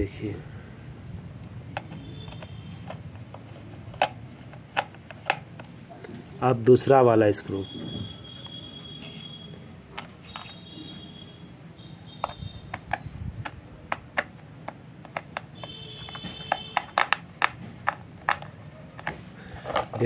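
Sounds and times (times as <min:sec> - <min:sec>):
faint high-pitched beeping: 0:07.4 - 0:12.7.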